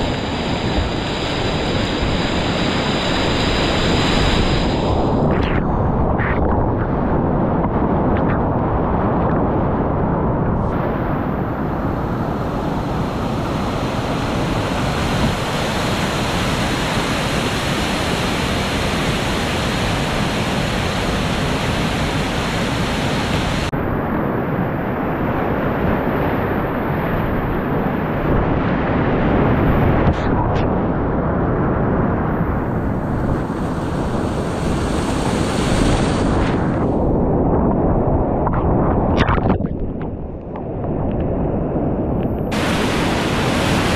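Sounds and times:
river rapids rushing: 13.2 - 23.7, 42.6 - 43.9.

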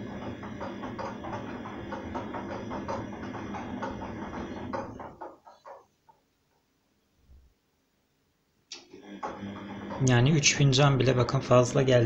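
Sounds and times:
washing machine drum sloshing: 0.0 - 5.9, 9.1 - 12.0.

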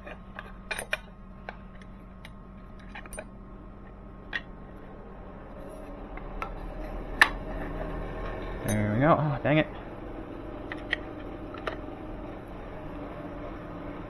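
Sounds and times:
faint steady hum: 0.0 - 14.0
metal parts clicking in a vise: 0.7 - 1.1.

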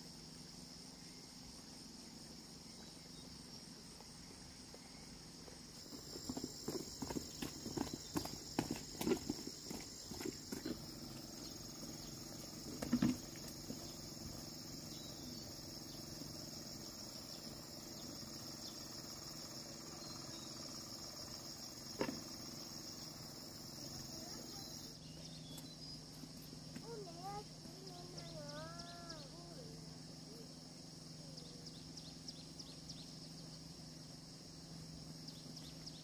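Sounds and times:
insect chorus shrilling: 0.0 - 36.0.

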